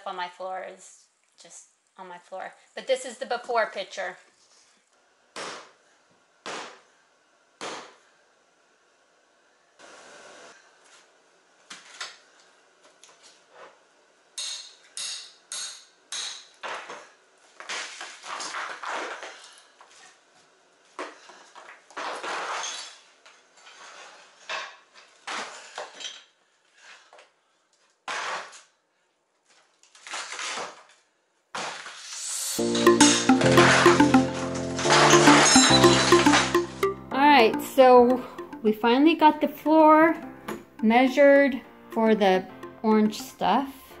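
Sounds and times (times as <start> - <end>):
music: 32.6 - 44.0.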